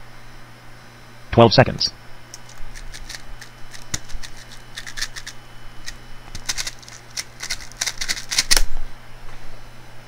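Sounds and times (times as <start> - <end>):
plastic puzzle cube clicking: 2.4 - 5.3, 6.3 - 8.7.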